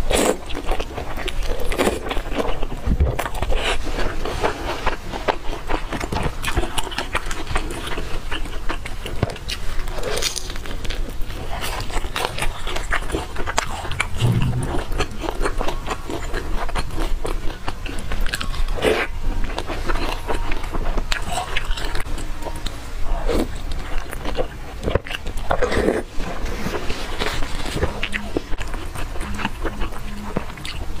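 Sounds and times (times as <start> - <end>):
biting and chewing fried dough: 0.0 - 31.0.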